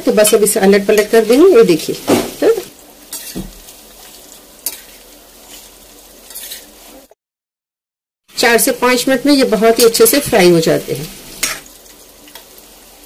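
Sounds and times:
food deep-frying in oil: 0.0 - 7.1, 8.3 - 13.0
metal spoon clinking and scraping: 3.1 - 3.4, 6.3 - 6.7.

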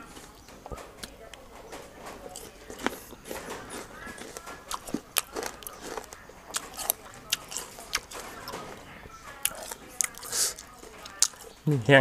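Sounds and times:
person chewing crunchy fruit: 2.3 - 11.6.

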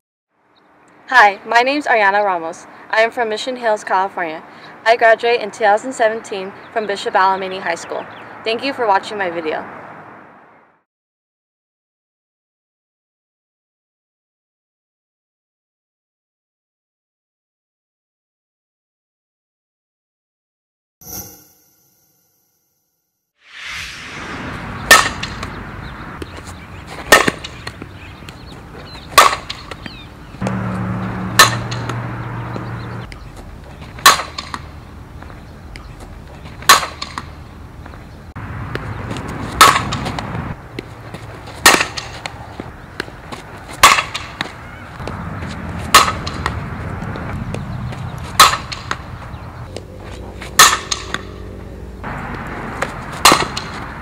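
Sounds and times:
bat cracking on ball: 24.9 - 25.6, 27.0 - 28.4, 29.1 - 30.6, 31.4 - 32.0, 34.0 - 34.7, 36.6 - 37.4, 39.6 - 40.9, 41.6 - 43.2, 43.8 - 45.2, 45.9 - 46.6, 48.4 - 49.1, 50.6 - 51.4, 52.8 - 53.9.

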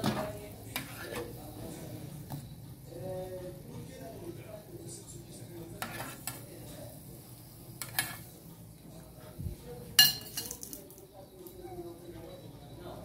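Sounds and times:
metal spoon scraping frying pan: 0.7 - 1.4, 5.8 - 6.4, 7.8 - 8.3.

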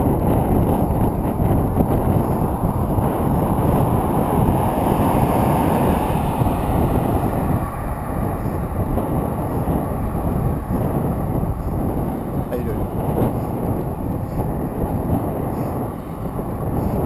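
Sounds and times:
wind buffeting microphone: 0.0 - 17.0
car passing with tyre hiss: 2.3 - 12.5.

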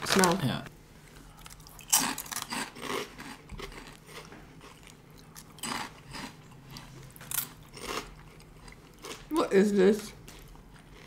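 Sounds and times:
crunchy snack chewing: 1.4 - 9.3.

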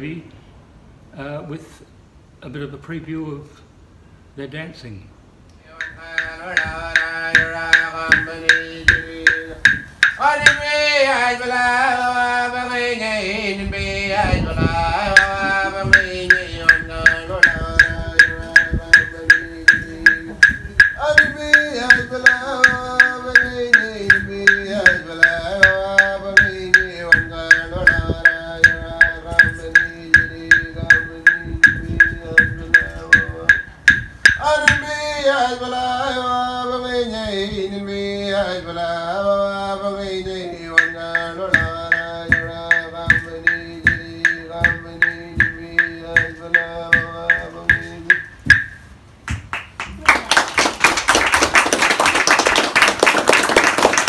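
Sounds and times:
person chanting: 5.6 - 48.4.

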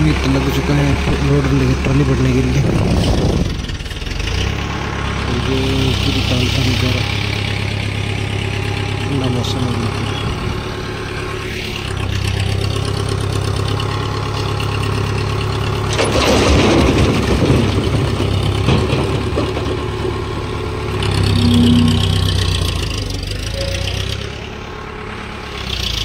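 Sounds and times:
tractor diesel engine running: 0.0 - 26.0.

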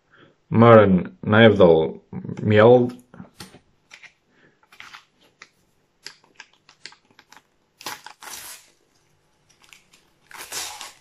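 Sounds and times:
packet tearing: 4.7 - 11.0
sticker packet crinkling: 4.7 - 11.0.

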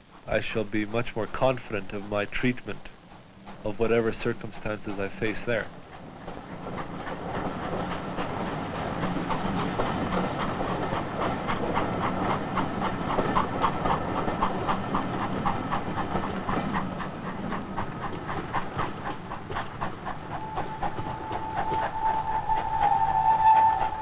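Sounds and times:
train rumble: 0.0 - 24.0
train wheels clicking on rails: 0.0 - 24.0
steady high train horn: 20.4 - 24.0.

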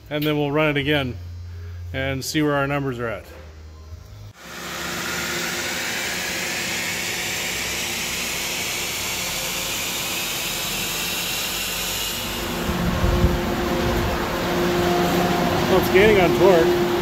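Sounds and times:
engine at full throttle: 4.4 - 10.8.

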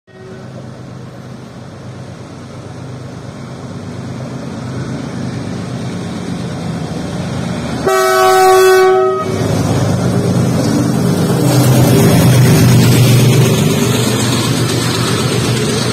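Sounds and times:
locomotive multi-tone horn: 0.1 - 0.6, 7.8 - 9.5
locomotive engine rumble: 0.1 - 15.9.

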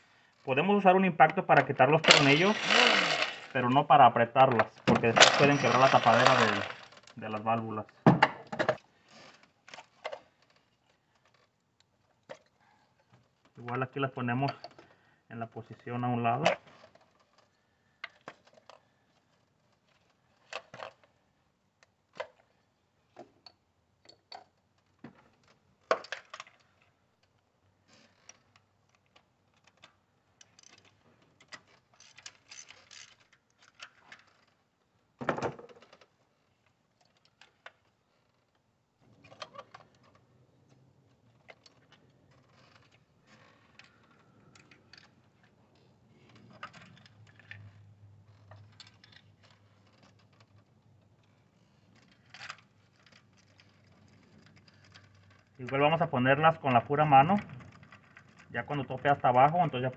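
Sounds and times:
clicks and clinks of plastic connectors: 4.4 - 8.0, 16.3 - 21.2, 21.8 - 34.8, 35.6 - 59.9.

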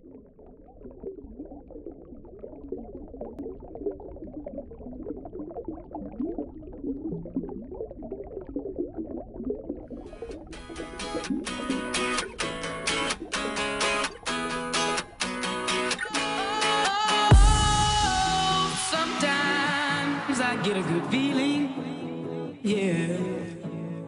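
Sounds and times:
underwater bubbling and gurgling: 0.0 - 16.2
strummed guitar music: 10.4 - 24.0.

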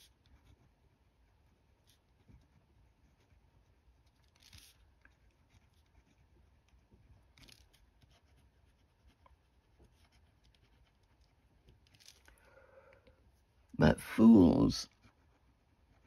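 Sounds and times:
pen scratching on paper: 0.0 - 11.8
soft paper rustle: 0.0 - 13.7.

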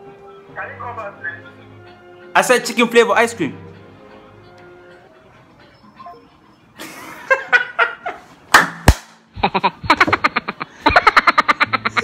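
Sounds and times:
voice through phone loudspeaker: 0.5 - 1.5
man laughing: 6.8 - 8.3, 9.4 - 12.0.

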